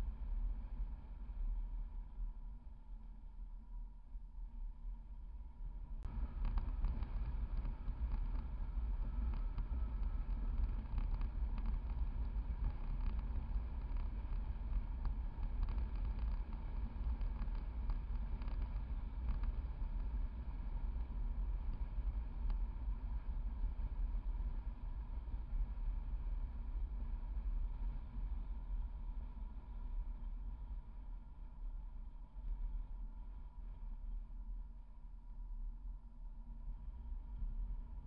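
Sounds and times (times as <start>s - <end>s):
light ticks from road: 6.0s - 23.4s
deep road and tyre rumble: 6.1s - 24.8s.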